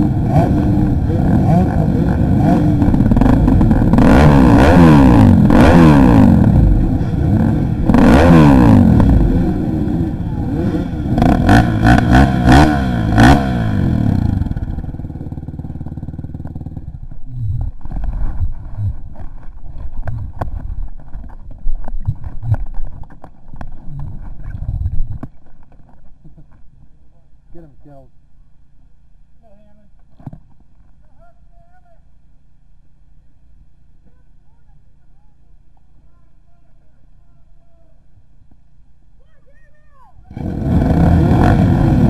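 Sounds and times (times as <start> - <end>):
dirt bike engine revving: 0.0 - 19.1, 40.3 - 42.0.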